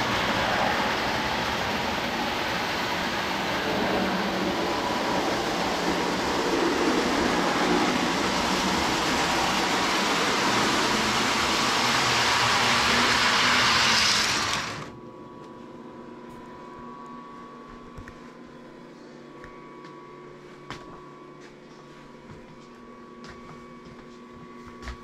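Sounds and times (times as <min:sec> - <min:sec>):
toy train whirring and rumbling: 0:00.0 - 0:15.0.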